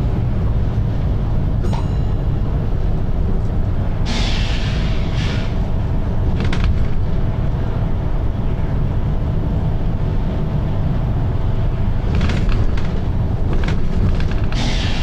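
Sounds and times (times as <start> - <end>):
bus diesel engine rumble: 0.0 - 15.0
clicking rattles: 6.3 - 7.2, 12.0 - 15.0.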